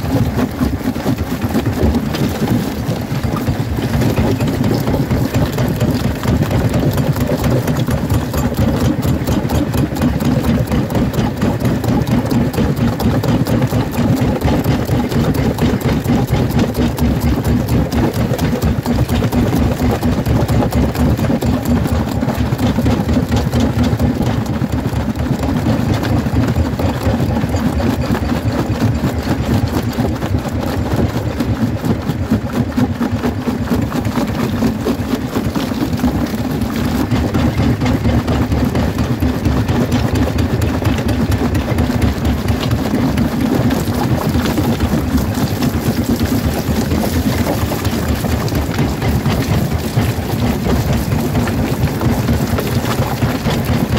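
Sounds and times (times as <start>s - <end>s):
rock cracking and crunching: 0.0s - 9.1s.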